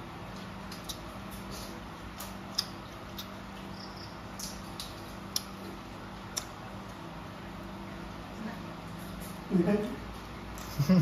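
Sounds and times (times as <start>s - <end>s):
steady low hum: 0.0s - 11.0s
chewing: 0.3s - 3.8s.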